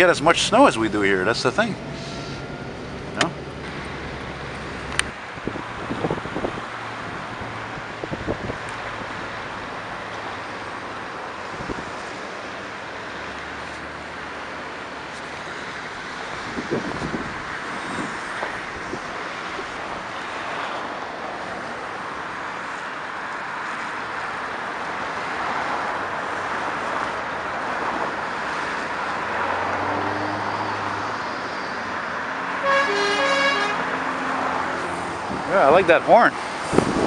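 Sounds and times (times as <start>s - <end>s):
cars driving on slushy road: 0.0s - 37.0s
engine hum: 0.0s - 37.0s
vehicle horn: 32.6s - 33.9s.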